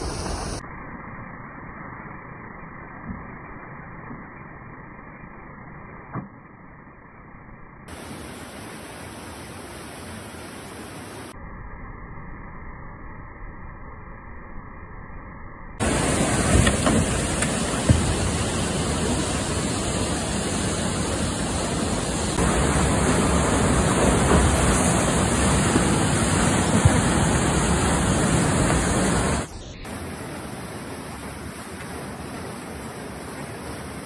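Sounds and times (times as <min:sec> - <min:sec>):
whitewater rushing: 0:15.8 - 0:34.0.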